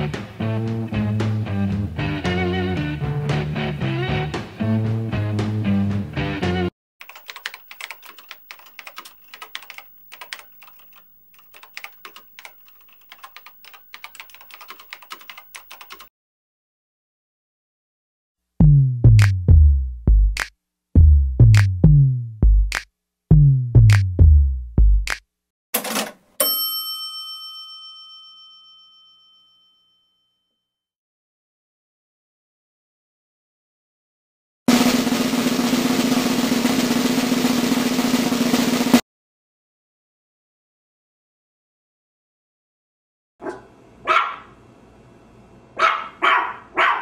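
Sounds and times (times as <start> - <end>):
keyboard typing: 7.0 - 16.1
bell ding: 26.4 - 30.6.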